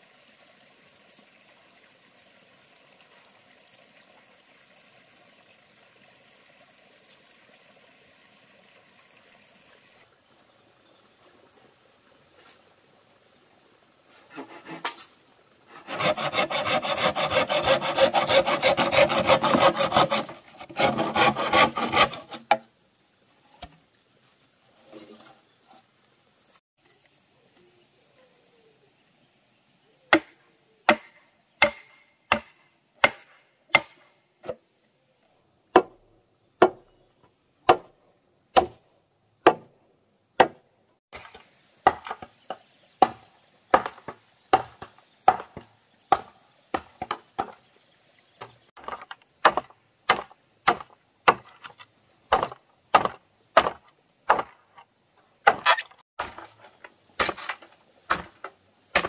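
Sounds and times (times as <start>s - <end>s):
machete chopping bamboo: 15.9s - 22.7s, 30.1s - 34.6s, 35.7s - 36.0s, 36.6s - 36.8s, 37.6s - 37.9s, 38.5s - 38.8s, 39.4s - 39.7s, 40.4s - 40.6s, 41.2s - 47.6s, 48.8s - 54.8s, 55.4s - 56.6s, 57.2s - 59.0s.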